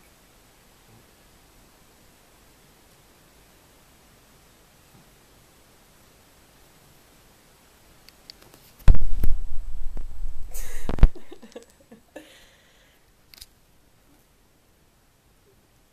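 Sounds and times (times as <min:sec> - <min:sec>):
heavy low rumble: 0:08.9 - 0:11.4.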